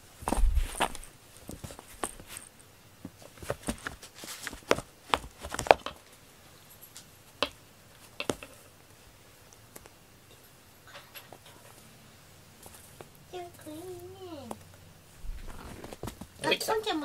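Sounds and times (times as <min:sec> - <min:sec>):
cat clawing cardboard scratcher: 0:03.2 - 0:05.9.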